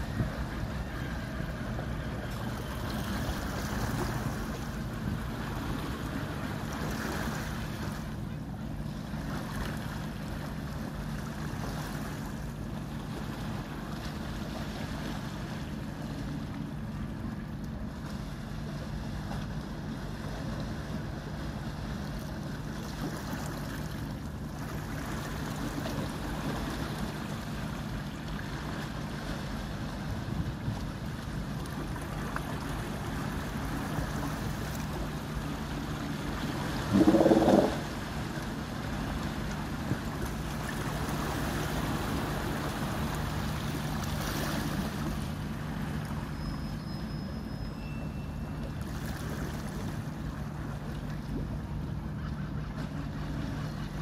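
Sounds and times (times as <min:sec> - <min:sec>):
marine engine drone: 0:00.0 - 0:54.0
water washing: 0:36.5 - 0:39.4
wind on the microphone: 0:36.8 - 0:38.0.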